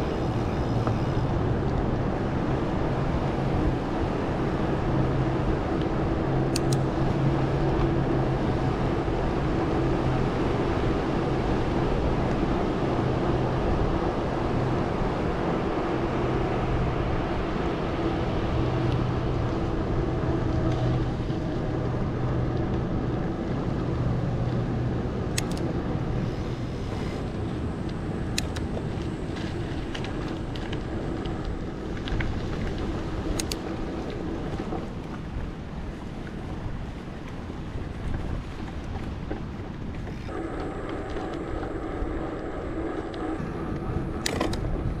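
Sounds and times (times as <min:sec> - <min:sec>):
bicycle tyre and air rush: 0:13.5 - 0:45.0
low hum: 0:40.0 - 0:45.0.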